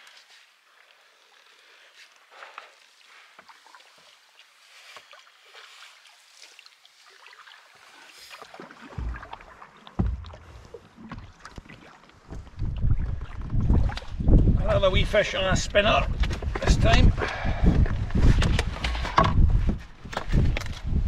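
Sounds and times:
paddle strokes: 0.0s - 14.5s
water splashes and drips: 0.0s - 14.5s
low knocks and rumbling: 8.9s - 14.7s.

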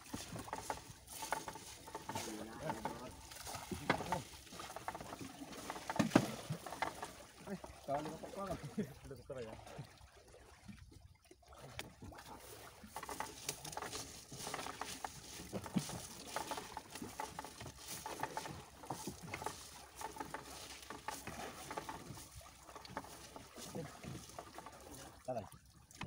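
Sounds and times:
water pattering and splashing: 0.0s - 26.0s
wet net hauled over boat: 0.0s - 26.0s
small clicks and knocks: 0.1s - 7.2s, 12.9s - 23.4s.

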